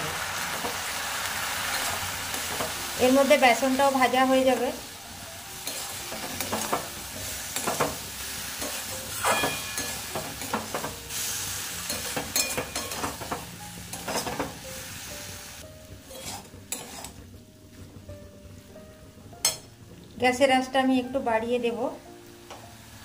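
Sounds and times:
food sizzling in a pan: 0:00.0 - 0:23.0
metal spatula scraping a pan: 0:05.5 - 0:14.6, 0:16.0 - 0:17.3.

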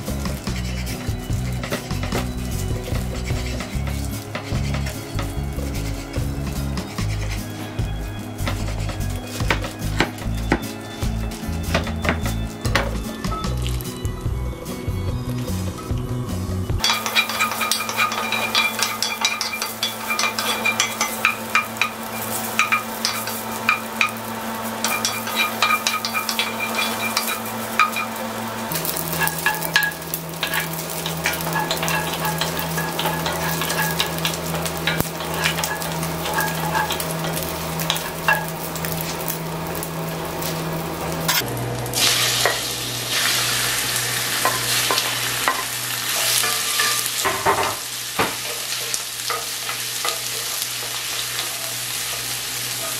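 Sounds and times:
wooden spatula scraping a pan: 0:00.0 - 0:12.4, 0:16.8 - 0:40.6
beef fat sizzling in a pot: 0:00.0 - 0:12.7, 0:16.8 - 0:52.9
liver frying in fat: 0:00.0 - 0:52.9.

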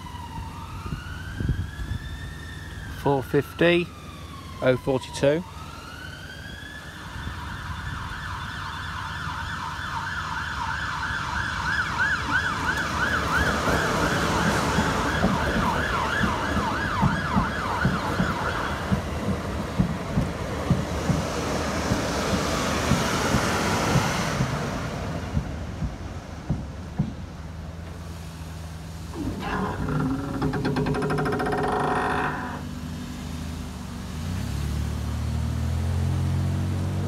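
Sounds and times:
train wheels knocking: 0:13.6 - 0:24.7.

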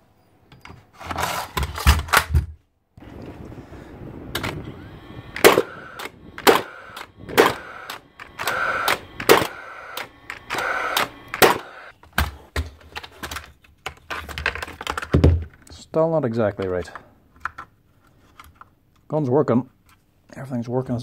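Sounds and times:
nail gun fan whirring: 0:03.0 - 0:12.7
nail gun firing sharp cracks: 0:05.4 - 0:12.3.

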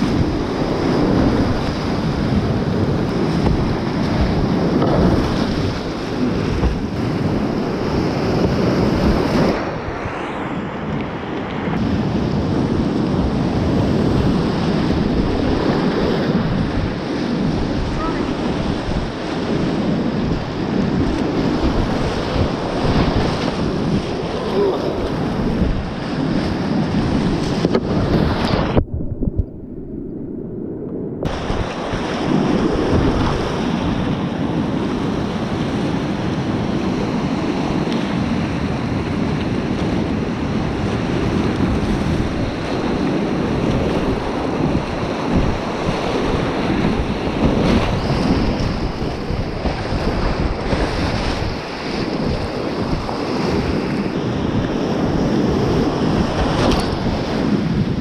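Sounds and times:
wind buffeting microphone: 0:00.0 - 0:58.0
whitewater rapids rushing: 0:20.2 - 0:26.0.

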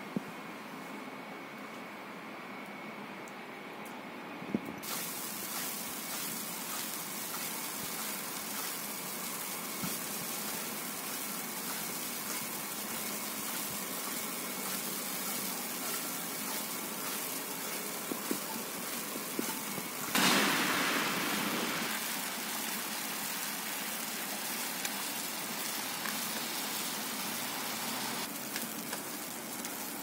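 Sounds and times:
wet snowy street hiss: 0:04.8 - 0:30.0.

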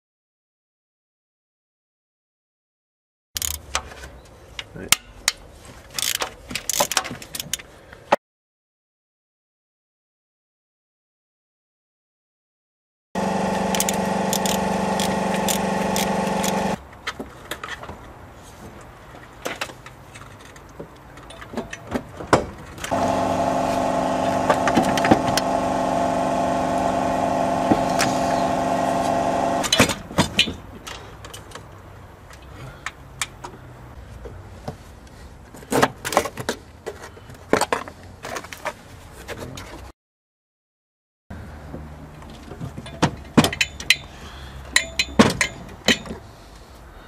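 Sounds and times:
ratchet clicking: 0:03.4 - 0:03.7, 0:06.0 - 0:07.6, 0:13.3 - 0:16.8
motor hum: 0:13.2 - 0:16.8, 0:22.9 - 0:29.7.

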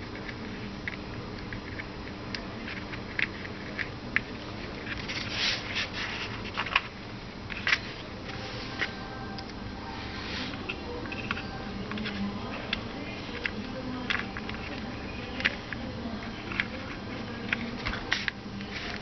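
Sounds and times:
low steady hum: 0:00.0 - 0:19.0
plastic and metal parts clicking: 0:06.2 - 0:07.9, 0:10.6 - 0:19.0.

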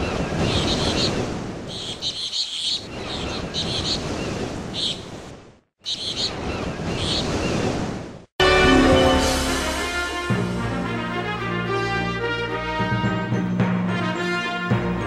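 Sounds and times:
water lapping: 0:00.0 - 0:08.2.

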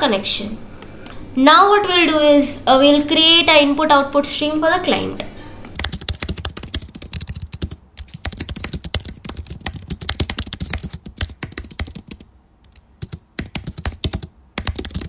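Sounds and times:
fast typing on a keyboard: 0:05.8 - 0:15.0.

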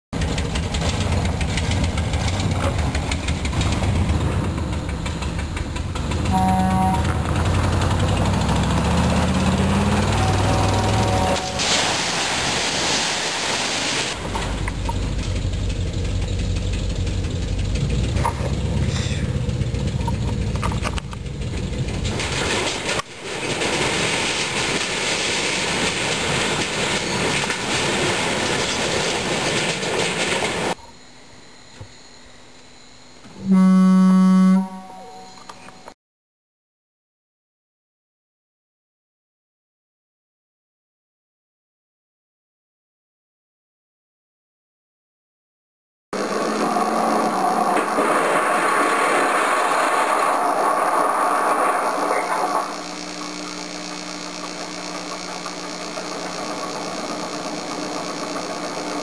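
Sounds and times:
pickup engine rumbling and knocking: 0:00.2 - 0:11.2, 0:14.2 - 0:30.8, 0:51.9 - 0:59.0
car horn honk: 0:06.2 - 0:07.4, 0:09.9 - 0:11.8, 0:33.4 - 0:35.3
sheet metal and wood crunching: 0:21.8 - 0:30.7.

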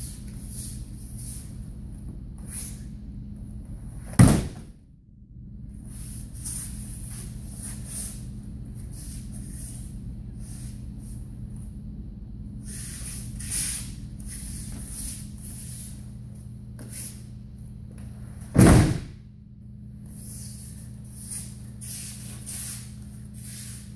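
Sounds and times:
body slapping onto mats: 0:04.0 - 0:04.7, 0:18.4 - 0:19.2.

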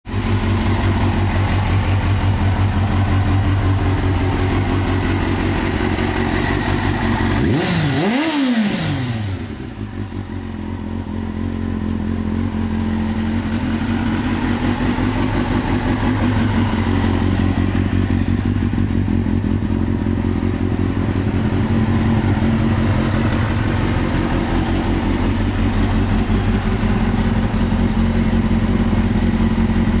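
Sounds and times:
motorcycle engine idling: 0:00.1 - 0:30.0.

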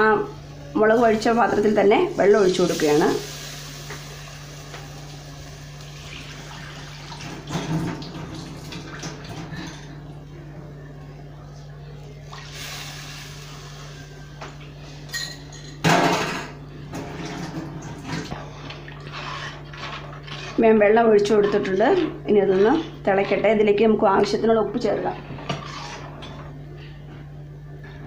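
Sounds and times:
liquid bubbling in a pot: 0:16.8 - 0:27.0.

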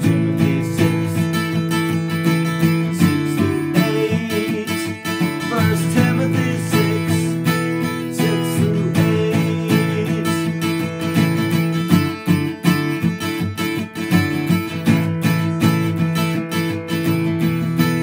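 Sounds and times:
man singing: 0:00.0 - 0:12.3
acoustic guitar strummed: 0:00.0 - 0:18.0.

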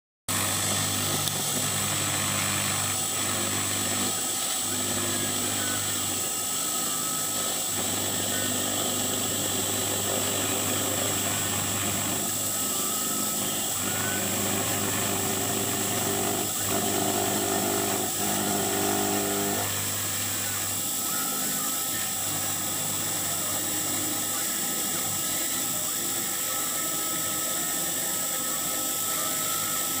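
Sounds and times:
spindle high whine: 0:00.3 - 0:30.0
low motor hum tones: 0:07.0 - 0:23.4.

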